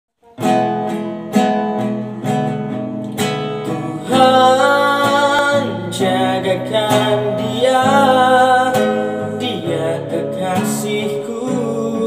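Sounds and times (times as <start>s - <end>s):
acoustic guitar strumming: 0.2s - 12.0s
person singing: 3.6s - 12.0s.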